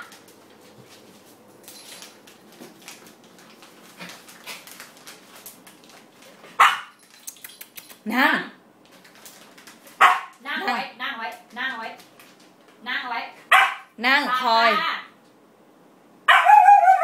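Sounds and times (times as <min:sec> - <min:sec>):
faint clicks and scuffs: 0:00.0 - 0:08.1
puppy barking: 0:06.6 - 0:07.0, 0:10.0 - 0:10.4, 0:13.5 - 0:13.9, 0:16.3 - 0:17.0.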